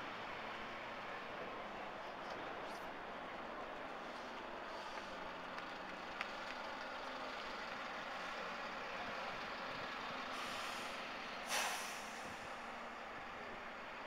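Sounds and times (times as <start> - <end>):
street traffic: 0.0 - 14.0
air brakes hissing: 10.3 - 12.6.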